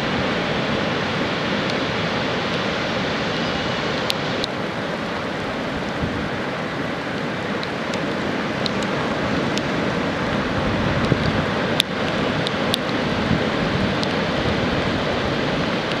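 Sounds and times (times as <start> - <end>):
surf breaking on beach: 0.0 - 16.0
wind: 0.0 - 16.0
faint clicks: 11.0 - 13.0.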